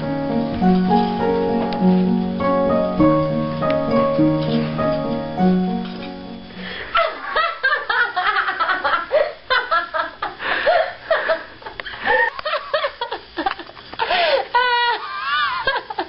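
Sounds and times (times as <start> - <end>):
held piano note: 0.0 - 6.7
woman laughing: 6.9 - 16.0.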